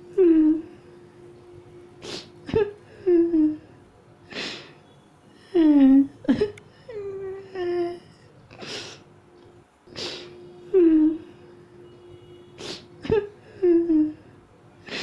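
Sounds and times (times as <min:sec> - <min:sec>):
person whimpering and sobbing: 0:00.0 - 0:00.8, 0:02.0 - 0:03.7, 0:05.4 - 0:09.0, 0:10.0 - 0:11.3, 0:12.6 - 0:15.0
sharp sniffs: 0:02.0 - 0:02.4, 0:09.9 - 0:10.4, 0:12.6 - 0:13.0.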